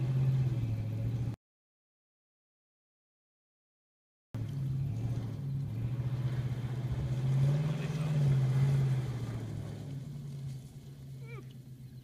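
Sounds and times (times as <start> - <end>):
pickup truck engine running: 0.0 - 1.4, 4.4 - 12.0
truck driving through river: 0.0 - 1.4, 4.4 - 12.0.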